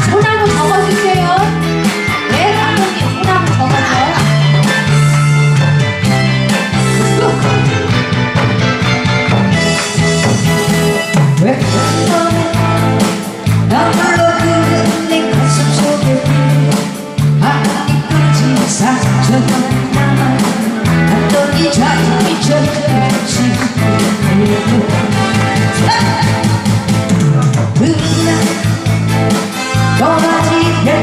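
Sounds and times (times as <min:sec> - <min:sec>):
backing track with bass line: 0:00.0 - 0:31.0
woman singing into microphone: 0:02.2 - 0:04.4, 0:11.3 - 0:26.7, 0:27.8 - 0:29.0, 0:29.8 - 0:31.0.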